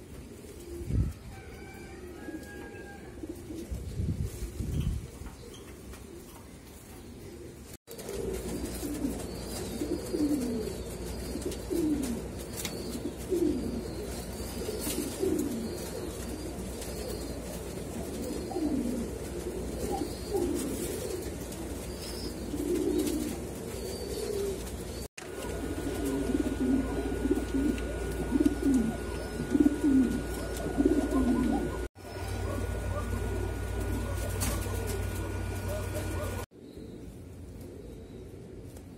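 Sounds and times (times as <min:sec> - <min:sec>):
pigeons cooing: 0:00.0 - 0:38.9
steady low hum: 0:07.9 - 0:38.9.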